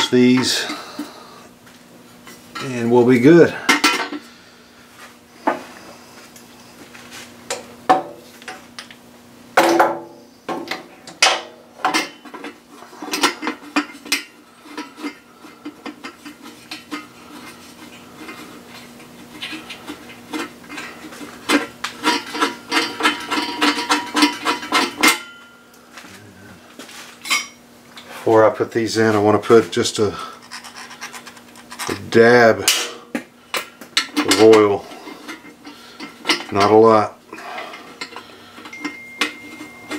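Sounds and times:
faint steady hum: 0.0 - 39.9
metal tools clinking: 37.6 - 39.9.

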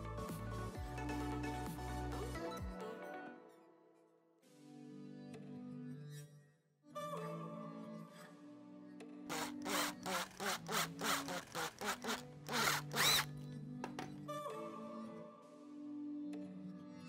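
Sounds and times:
background music: 0.0 - 17.0
power drill drilling metal: 9.3 - 13.3.

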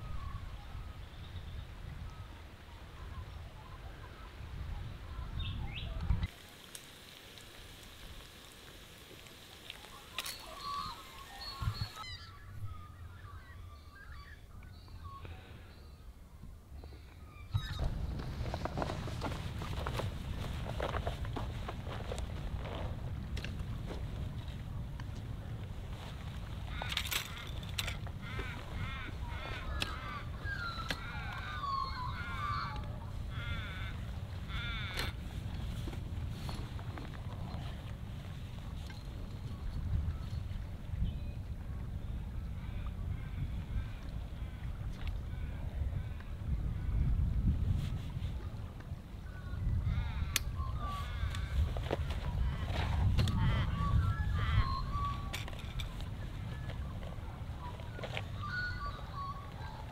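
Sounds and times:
wind on microphone: 0.0 - 6.3, 10.4 - 59.9
birds chirping: 9.6 - 18.7, 26.3 - 35.2, 53.2 - 59.9.

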